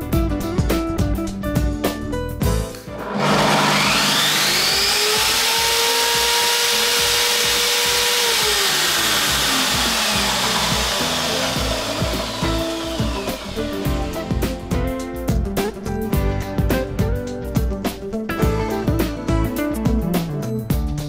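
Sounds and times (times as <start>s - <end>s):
table saw motor running: 2.9s - 14.7s.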